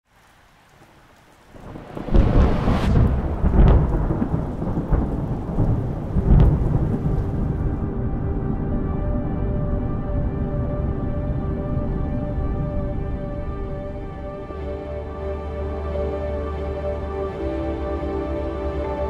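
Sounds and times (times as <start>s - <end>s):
thunder-like rolling rumble: 1.6s - 14.2s
held musical drone: 7.8s - 19.0s.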